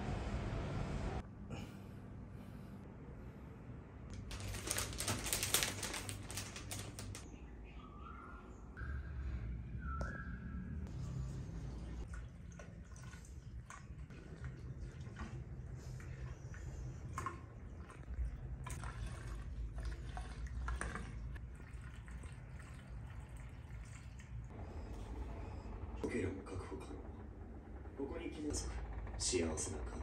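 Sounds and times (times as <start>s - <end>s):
water dripping: 12.0s - 15.4s, 17.2s - 24.5s
low steady rumble: 24.3s - 30.0s.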